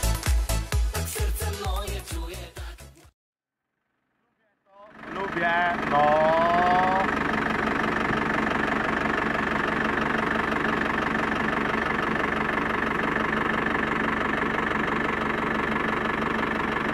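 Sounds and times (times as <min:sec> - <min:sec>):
diesel engine idling: 0:04.8 - 0:16.9.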